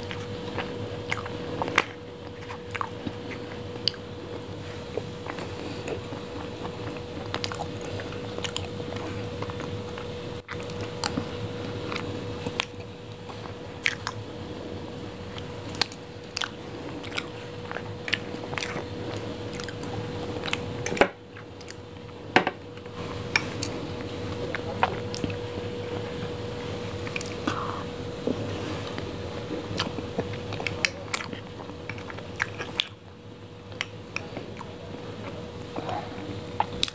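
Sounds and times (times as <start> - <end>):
chewing and mouth sounds: 0.0 - 14.2, 15.3 - 21.8, 23.3 - 25.4, 28.8 - 33.0
faint hum: 0.0 - 36.9.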